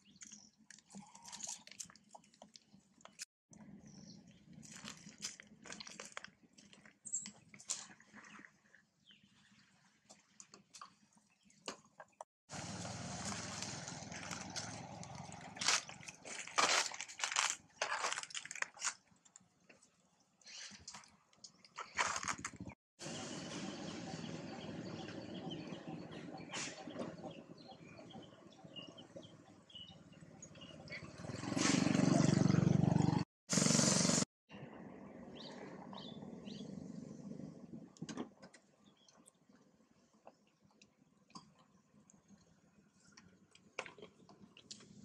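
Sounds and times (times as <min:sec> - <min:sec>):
small birds chirping: 0:22.6 - 0:31.4, 0:35.3 - 0:37.2, 0:38.8 - 0:40.8.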